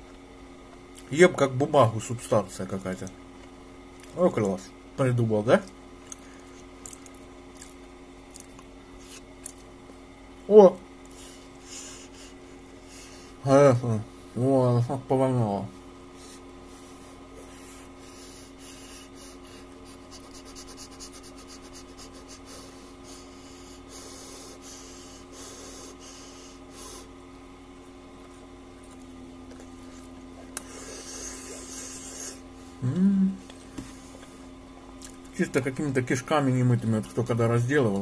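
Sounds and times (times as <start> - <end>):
steady electrical hum: 0.0 - 38.0
person humming mm: 30.6 - 33.6.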